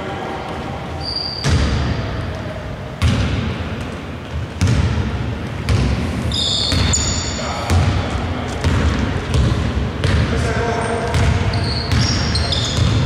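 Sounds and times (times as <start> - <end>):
basketball bouncing in a hall: 0.4 - 13.0
shoe squeaks: 1.0 - 2.0, 6.3 - 7.7, 10.8 - 13.0.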